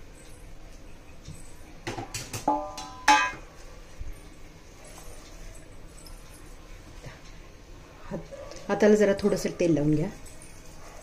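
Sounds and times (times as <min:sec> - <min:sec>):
steel utensils knocking: 0:02.0 - 0:03.5.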